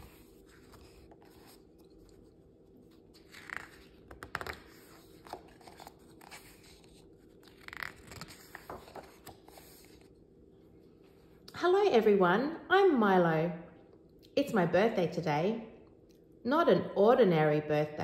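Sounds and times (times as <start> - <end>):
book pages turning: 0.0 - 10.2.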